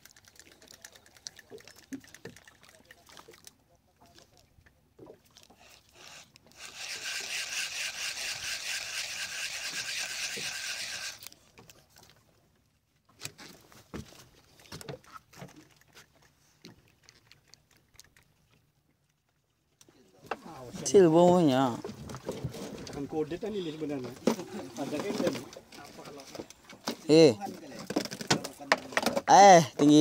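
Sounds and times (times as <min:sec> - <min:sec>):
fishing reel buzzing: 0:05.7 - 0:11.4.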